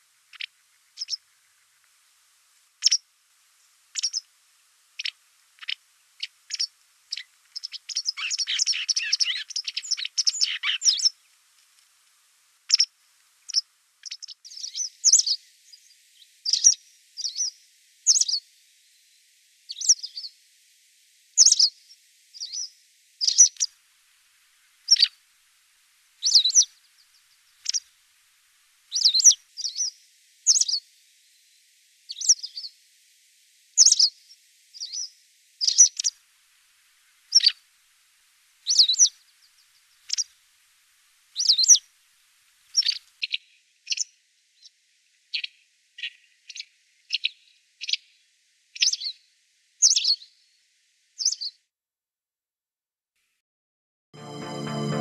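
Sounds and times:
bird twittering and chirping: 0:06.5 - 0:11.1.

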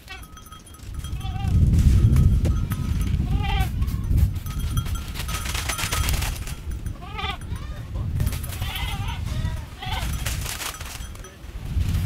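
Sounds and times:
goat bleating: 0:00.0 - 0:00.4, 0:01.1 - 0:01.6, 0:03.2 - 0:04.1, 0:06.8 - 0:10.2
wind rumble on microphone: 0:00.1 - 0:12.0
microphone handling noise: 0:01.0 - 0:06.7.

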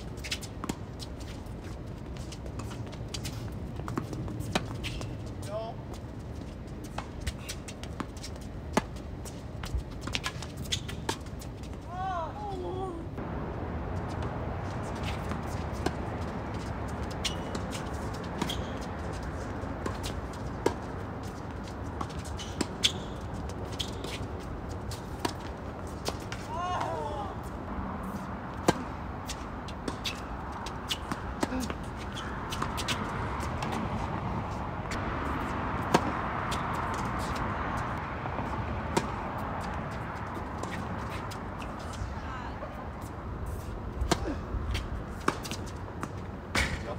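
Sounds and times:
balls bouncing on hard court: 0:00.0 - 0:11.9, 0:14.0 - 0:27.2, 0:28.6 - 0:42.1
racket striking a ball: 0:35.4 - 0:37.4, 0:44.0 - 0:44.4
tennis balls popping off rackets: 0:44.0 - 0:46.9.

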